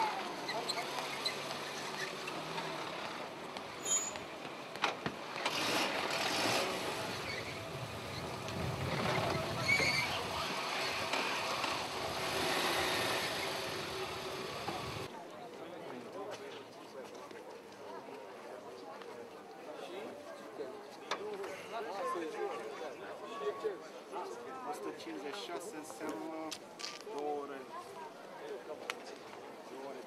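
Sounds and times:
distant voices: 0.0 - 15.1
tyres rolling on cobblestones: 0.0 - 15.1.

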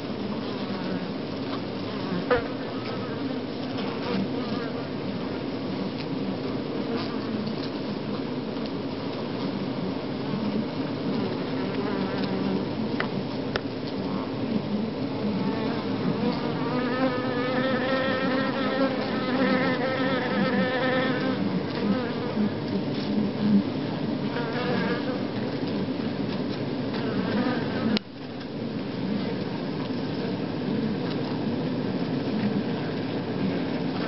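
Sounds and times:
bees buzzing: 15.1 - 22.6.

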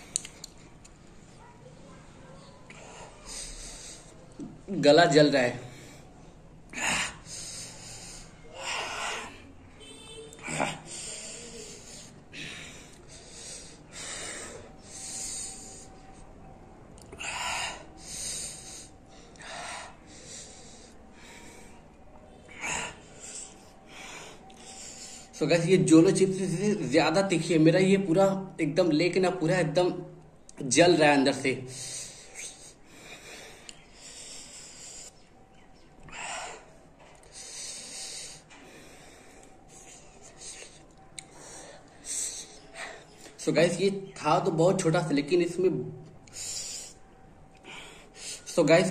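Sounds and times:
man breathing hard and hissing: 2.7 - 4.6, 5.5 - 9.7, 10.3 - 16.2, 17.1 - 25.4, 31.6 - 35.4, 36.0 - 43.4, 46.2 - 48.9.

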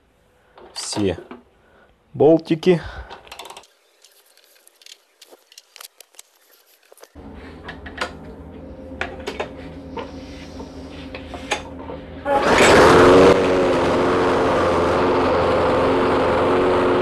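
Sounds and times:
steady low hum: 7.0 - 16.7.

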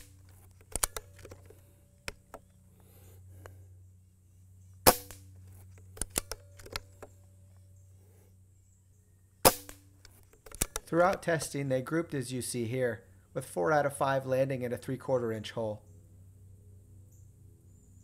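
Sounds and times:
air pistol shots: 4.8 - 5.3, 9.4 - 10.0.

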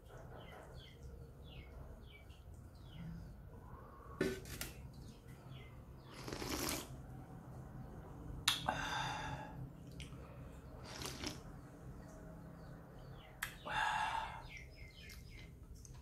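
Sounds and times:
man slurping noodles: 6.1 - 6.9.

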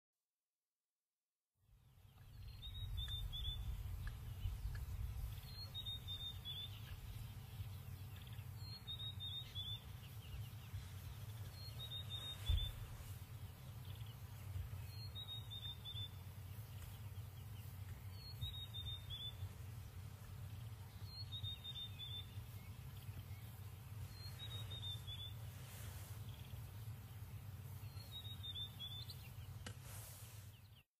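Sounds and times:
steady low rumble: 1.7 - 30.8
bird singing: 1.8 - 29.8
thump: 12.4 - 12.8.

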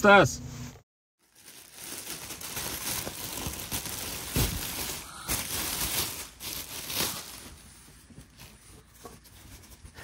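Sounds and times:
plastic bag crinkling: 1.2 - 8.6.

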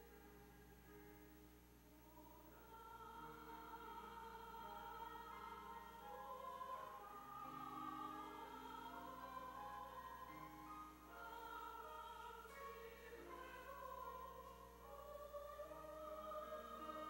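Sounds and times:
choir singing a hymn: 2.0 - 17.0.

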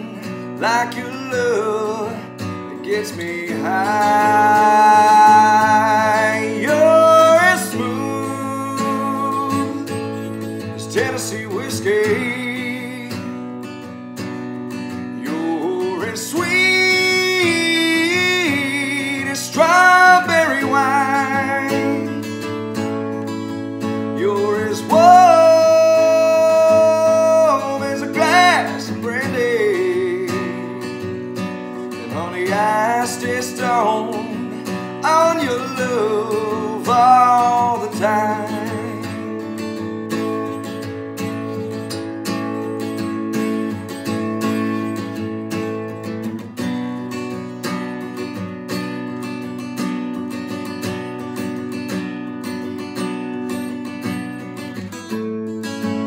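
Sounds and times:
man singing country ballad: 0.0 - 51.0
strummed acoustic guitar: 0.0 - 56.0.

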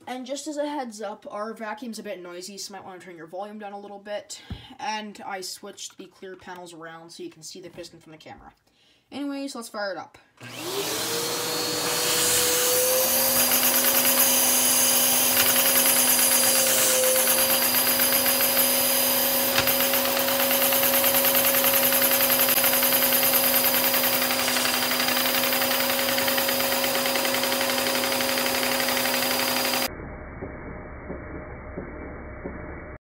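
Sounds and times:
vacuum cleaner motor whine: 10.4 - 29.9.

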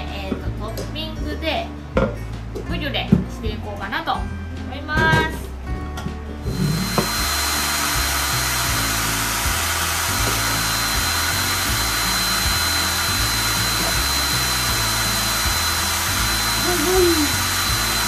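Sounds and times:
small kitchen appliance motor whining: 6.4 - 18.0.

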